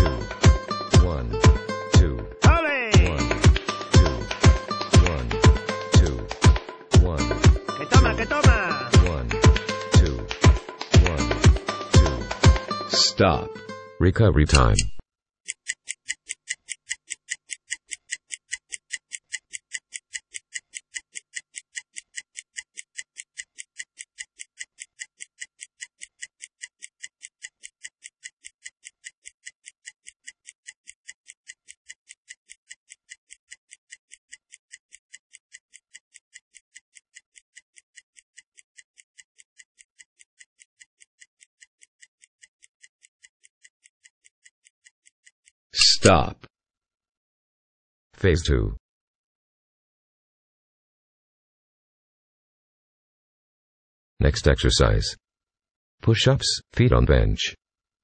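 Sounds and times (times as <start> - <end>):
stopwatch ticking: 0.0 - 12.9, 15.5 - 45.9.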